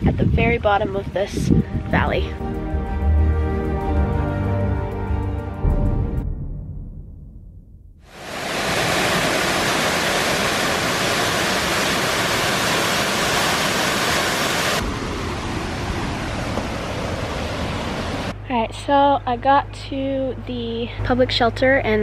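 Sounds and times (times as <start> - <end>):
waterfall rushing over rock: 8.1 - 18.3.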